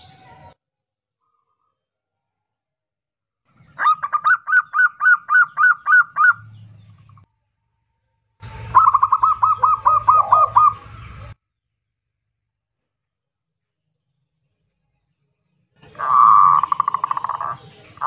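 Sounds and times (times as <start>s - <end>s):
dove cooing: 8.7s - 11.2s, 15.9s - 17.7s.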